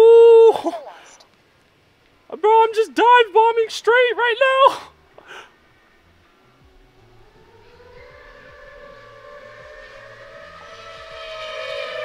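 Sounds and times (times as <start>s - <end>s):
drone motors whining: 6.0s - 12.0s.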